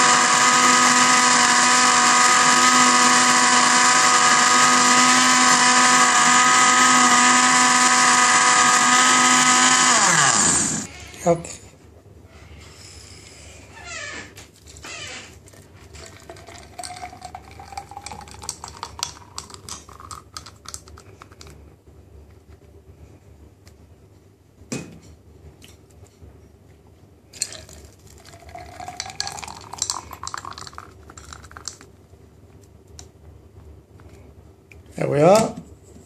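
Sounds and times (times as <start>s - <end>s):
smoothie pouring into glass: 0.0s - 10.8s, 15.8s - 21.4s, 27.4s - 31.9s
ice clinking against glass: 16.0s - 20.8s, 27.4s - 31.8s.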